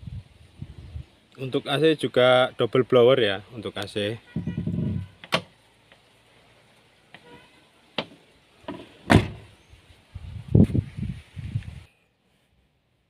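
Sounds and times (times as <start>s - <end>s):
car door clicks and knocks: 8.0s - 9.5s
car door shutting thud: 8.0s - 9.5s.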